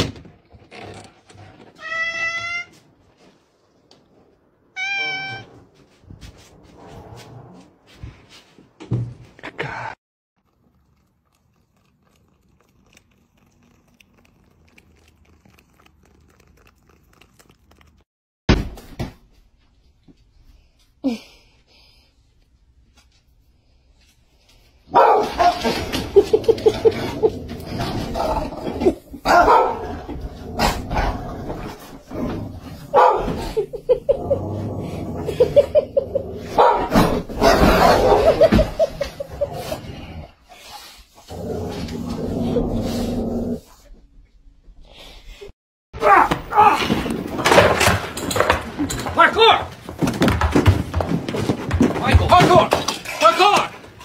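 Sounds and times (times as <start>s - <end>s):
cat chewing with crunching clicks: 10.4s - 18.0s
dogs barking and growling: 24.9s - 43.8s
person giggling: 33.4s - 34.6s, 35.2s - 36.4s.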